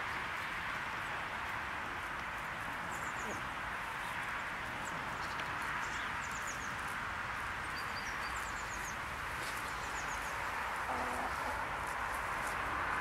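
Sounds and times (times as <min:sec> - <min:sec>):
steady outdoor hiss: 0:00.0 - 0:13.0
small birds chirping: 0:02.9 - 0:07.0, 0:07.6 - 0:11.6
hen calling: 0:10.9 - 0:11.6.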